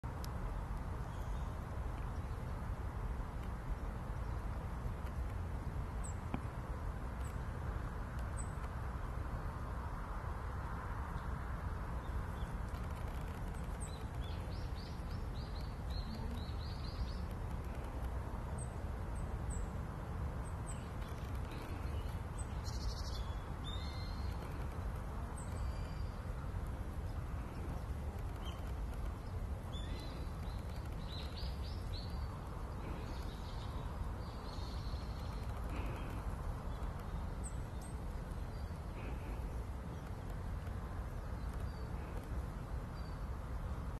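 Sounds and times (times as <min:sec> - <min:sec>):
low background rumble: 0:00.0 - 0:43.9
small birds chirping: 0:11.0 - 0:43.9.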